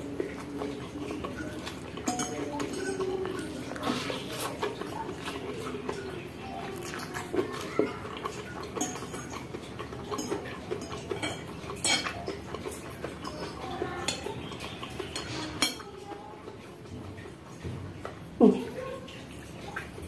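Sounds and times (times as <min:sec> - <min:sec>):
chewing: 0:00.0 - 0:20.0
fork clinking against ceramic bowl: 0:00.2 - 0:06.1, 0:07.6 - 0:16.0.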